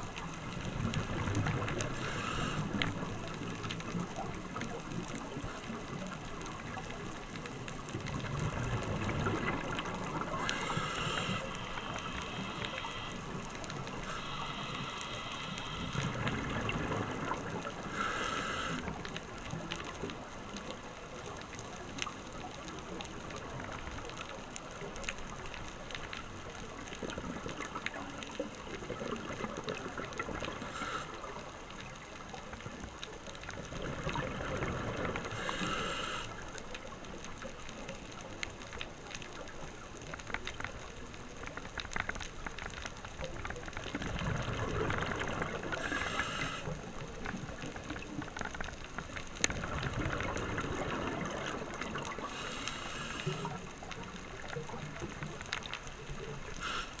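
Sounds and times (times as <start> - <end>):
underwater hiss: 0.0 - 4.6, 8.8 - 20.0, 27.3 - 32.0, 34.0 - 36.8, 44.0 - 48.1, 49.7 - 55.2, 56.1 - 57.0
exhaled bubbles gurgling underwater: 0.0 - 57.0.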